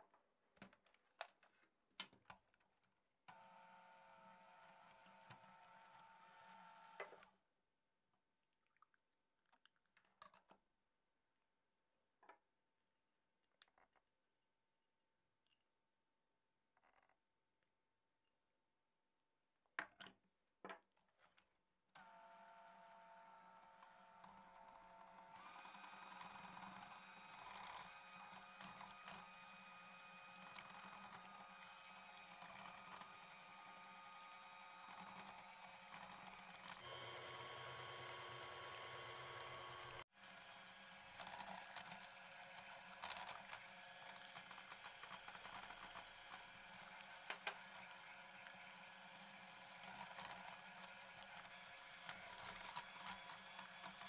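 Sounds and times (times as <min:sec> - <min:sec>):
electric hand mixer whirring: 0:03.3 - 0:07.3, 0:22.0 - 0:54.0.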